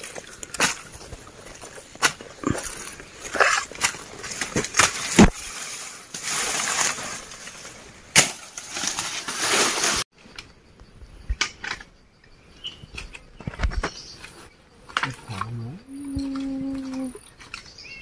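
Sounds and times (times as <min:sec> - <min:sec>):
dry leaves rustling and crackling: 0:00.0 - 0:10.0.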